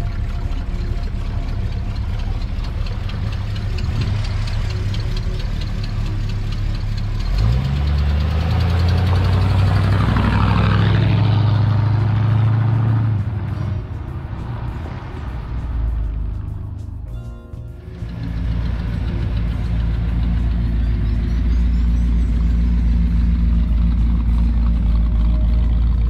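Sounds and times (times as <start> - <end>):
car engine revving: 0.0 - 17.1, 17.8 - 26.0.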